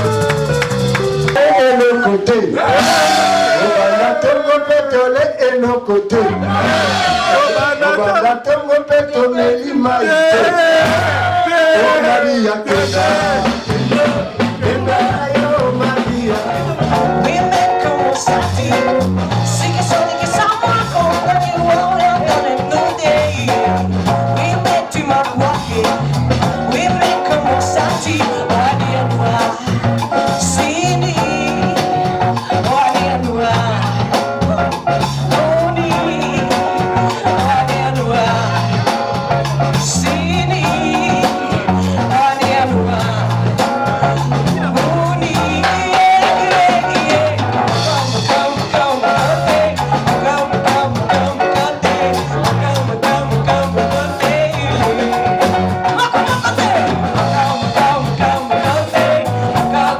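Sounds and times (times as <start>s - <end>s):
drum kit beat: 0.0s - 59.9s
electric guitars: 0.0s - 59.9s
woman singing into a microphone: 17.2s - 23.8s, 26.7s - 34.2s, 35.3s - 38.8s, 39.8s - 59.9s.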